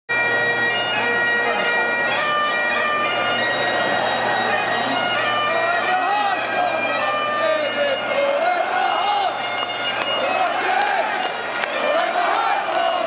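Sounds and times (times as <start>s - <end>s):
bagpipes playing a tune: 0.1s - 13.0s
large stadium crowd noise: 0.1s - 13.0s.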